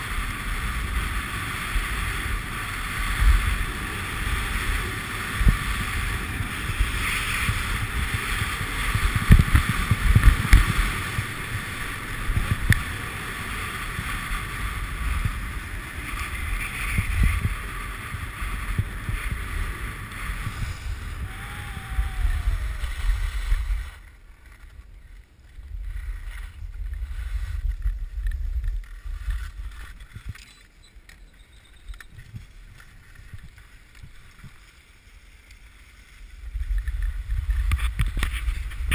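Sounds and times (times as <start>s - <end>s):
wind rushing over microphone: 0.0s - 24.1s, 36.4s - 38.9s
skis scraping over snow: 0.0s - 38.9s.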